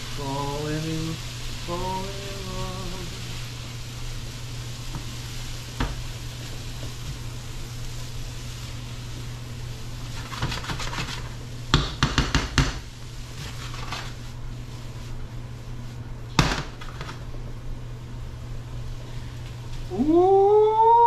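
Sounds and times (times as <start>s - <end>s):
steady low hum: 0.0s - 11.8s, 12.8s - 21.0s
food sizzling in a skillet: 0.0s - 16.1s
spatula stirring and scraping: 10.1s - 11.4s.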